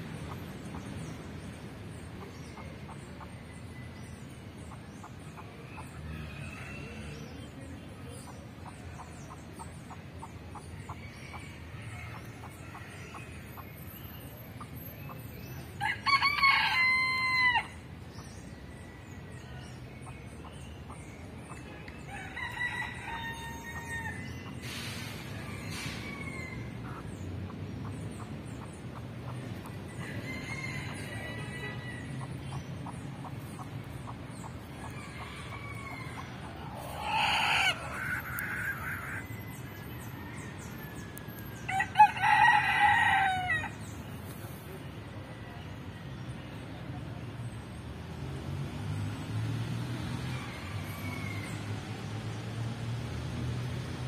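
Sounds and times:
rooster crowing: 41.7 - 43.7.

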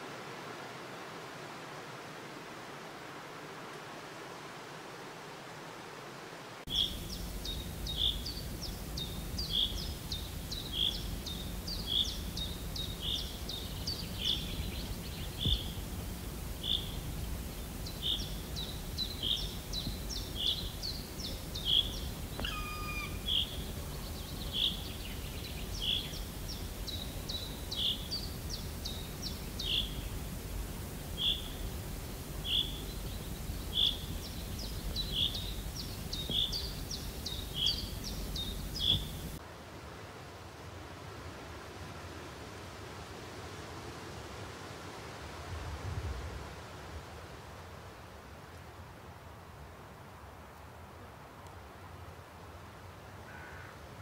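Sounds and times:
bird chirping: 6.7 - 15.9, 16.5 - 30.3, 31.1 - 39.4
steady low rumble: 6.7 - 39.4.

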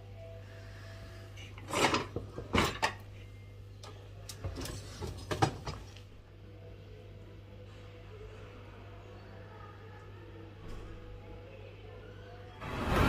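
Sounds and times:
low steady hum: 0.0 - 13.0
dishes and racks clattering: 1.5 - 3.1, 4.3 - 6.0.

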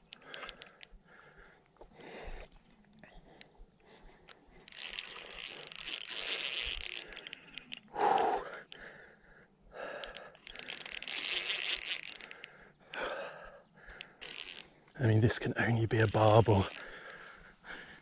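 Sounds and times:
fishing reel drag clicking: 0.0 - 1.0, 4.6 - 8.8, 10.0 - 13.0, 14.0 - 15.0, 15.9 - 17.2.

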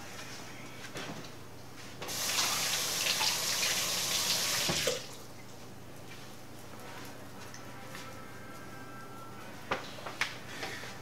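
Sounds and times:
faucet water running: 2.1 - 5.3.

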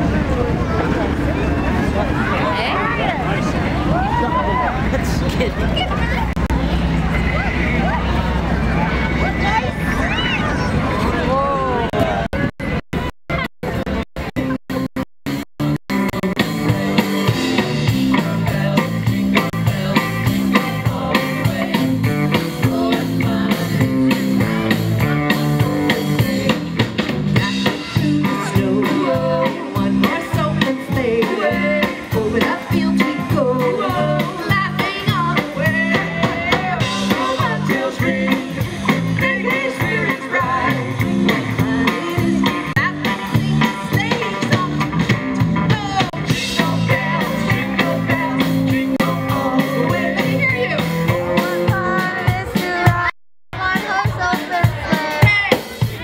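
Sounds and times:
drum kit beat: 12.3 - 56.0
woman singing: 27.4 - 38.5, 39.1 - 50.8, 51.4 - 55.7.

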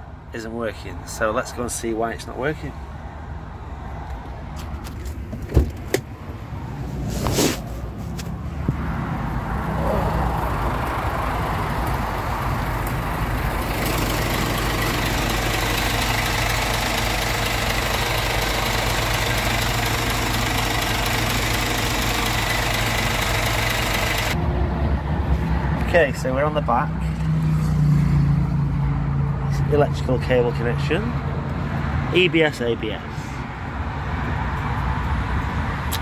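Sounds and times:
diesel engine idling: 9.3 - 24.4.

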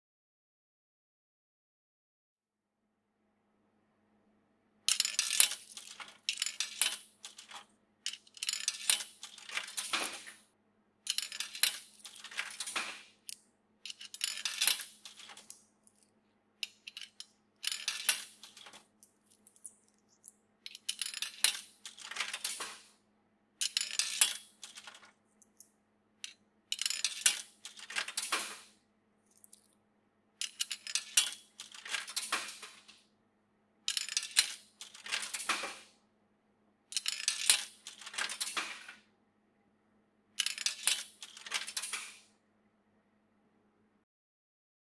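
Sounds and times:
coins clinking through coin mechanism: 4.9 - 10.4, 11.1 - 23.0, 23.6 - 29.7, 30.4 - 33.0, 33.9 - 35.9, 36.9 - 39.0, 40.4 - 42.3.

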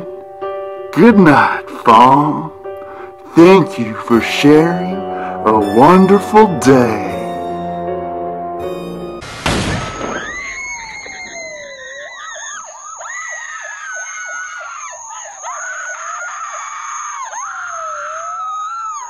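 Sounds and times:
loud crash: 9.2 - 11.6
woman screaming: 10.0 - 19.0.

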